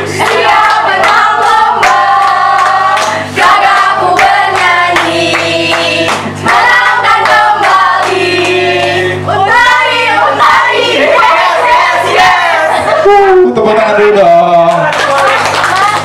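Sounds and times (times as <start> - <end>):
group singing a chant: 0.0 - 13.1
hands clapping: 1.8 - 3.2, 4.2 - 8.2, 14.7 - 16.0.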